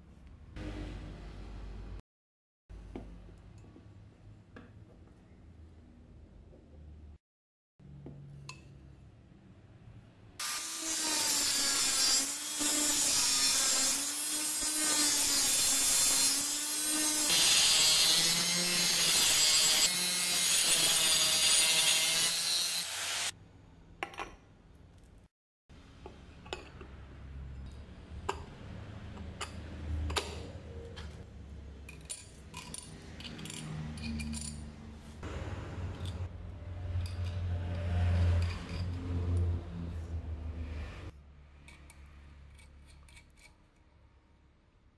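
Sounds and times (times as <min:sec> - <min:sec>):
angle grinder grinding steel: 0:10.4 - 0:23.3
small metal clicks: 0:31.9 - 0:34.7.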